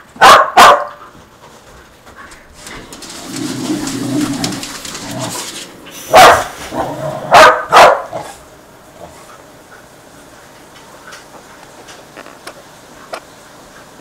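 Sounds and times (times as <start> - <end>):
dog barking: 0.2 - 1.0, 6.1 - 6.6, 7.3 - 8.3.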